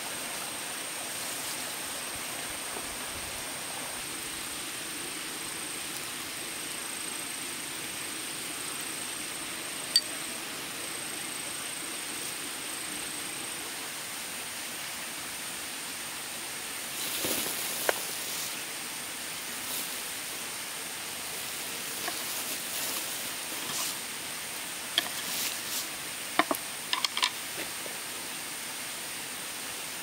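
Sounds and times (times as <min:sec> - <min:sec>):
steady hiss: 0:00.0 - 0:30.0
thin high steady tone: 0:09.8 - 0:10.8
short rustle: 0:17.0 - 0:18.6, 0:21.6 - 0:24.0, 0:25.0 - 0:26.0.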